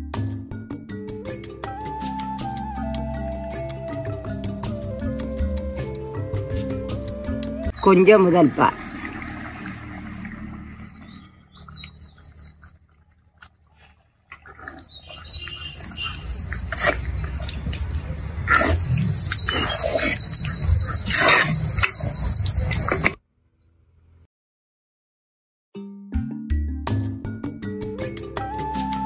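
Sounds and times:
low rumbling: 4.2s - 14.2s
birds chirping: 7.2s - 13.0s, 14.4s - 23.1s.

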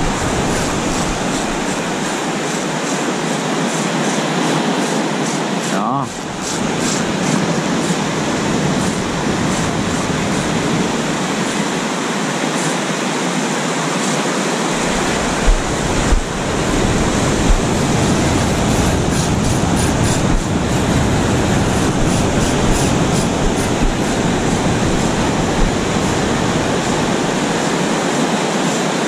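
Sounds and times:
wind on microphone: 0.0s - 4.0s, 6.1s - 12.5s, 14.6s - 29.0s
surf breaking on a beach: 0.0s - 29.0s
deep rumble: 14.8s - 27.6s
low thumps: 14.8s - 27.6s.

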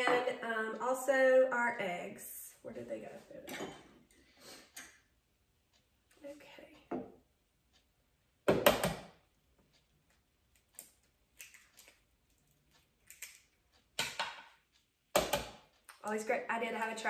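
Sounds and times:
eggs cracking against bowl rim: 10.4s - 14.5s.

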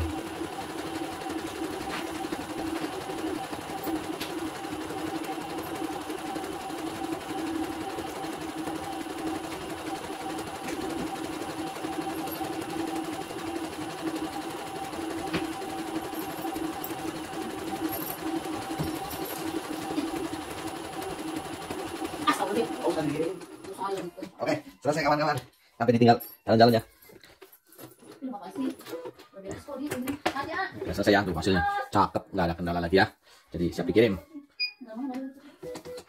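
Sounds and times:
embroidery machine humming: 0.0s - 24.1s.

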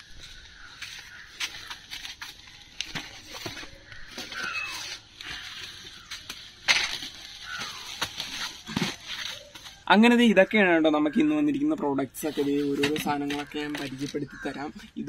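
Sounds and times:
plastic sack rustling: 0.1s - 9.8s.

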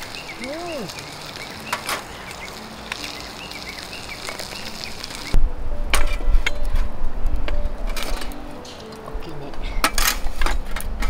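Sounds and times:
small birds chirping: 0.0s - 5.4s.

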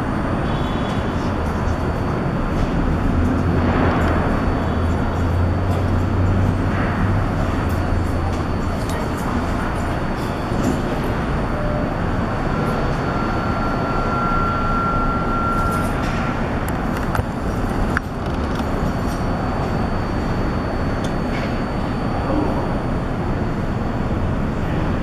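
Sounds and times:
subway train rumbling: 0.0s - 25.0s
high wheel squeal: 11.5s - 16.2s.

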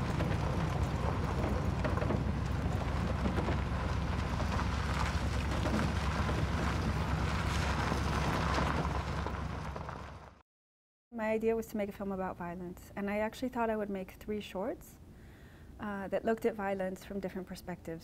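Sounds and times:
wind noise: 0.0s - 10.2s
truck engine and road rumble: 0.0s - 10.4s.

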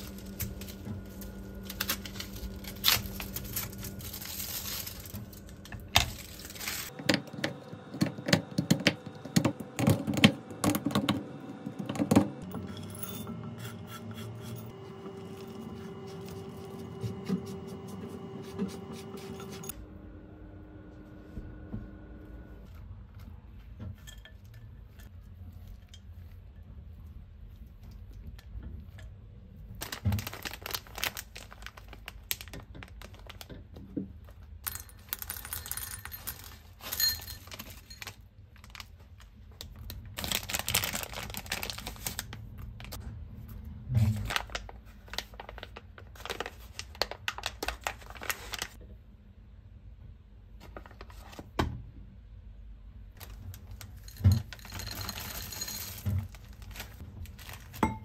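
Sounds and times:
plastic bag crinkling: 0.0s - 7.0s, 29.8s - 33.6s, 34.3s - 43.0s, 44.1s - 48.8s, 53.2s - 57.9s
spatula scraping glass bowl: 12.6s - 14.7s.

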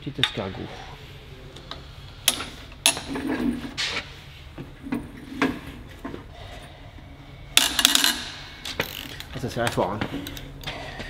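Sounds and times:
socket wrench creaking and grinding: 7.6s - 9.4s.

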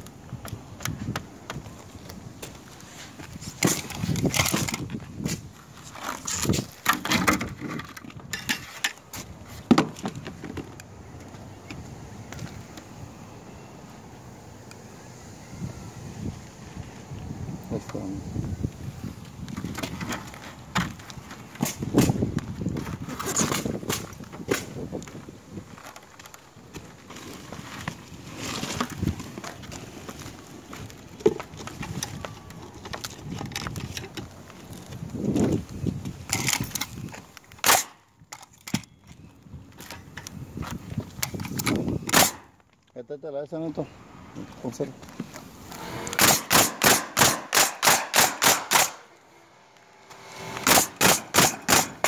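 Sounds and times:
boots shuffling on shingles: 0.1s - 12.8s, 18.4s - 37.6s, 43.6s - 46.1s
pneumatic nailer firing nails: 21.6s - 22.2s, 37.6s - 38.0s, 41.7s - 42.5s, 45.6s - 49.2s, 49.9s - 52.0s.

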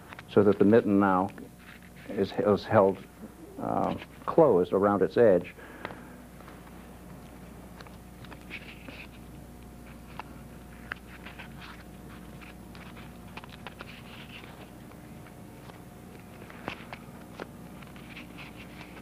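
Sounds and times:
paper tape and cardboard rustling: 7.8s - 9.2s, 9.8s - 15.0s, 15.6s - 19.0s.

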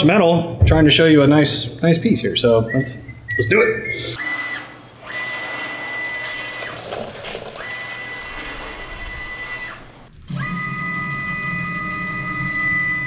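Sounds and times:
thin high whine: 5.2s - 10.9s
plasma torch cutting steel: 7.4s - 10.1s.

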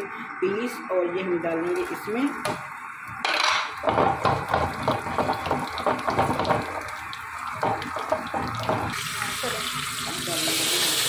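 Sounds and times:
spices sizzling in hot oil: 3.7s - 11.0s.

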